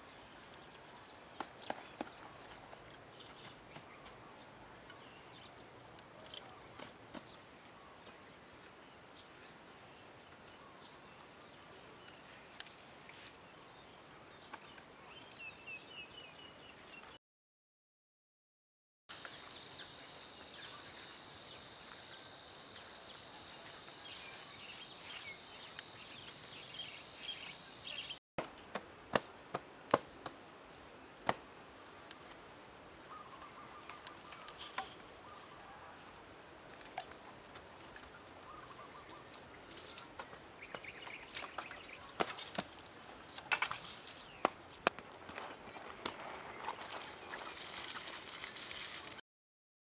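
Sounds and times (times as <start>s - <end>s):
bird chirps: 37.0s - 42.6s.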